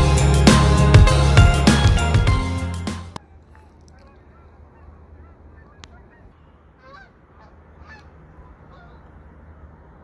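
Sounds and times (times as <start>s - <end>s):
distant flock of birds calling: 3.2s - 10.0s.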